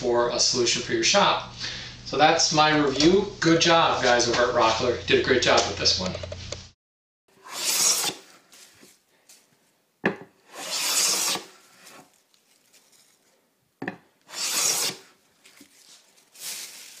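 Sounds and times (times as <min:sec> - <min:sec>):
hand plane shaving wood: 0:07.4 - 0:08.4, 0:10.4 - 0:12.1, 0:14.3 - 0:15.2.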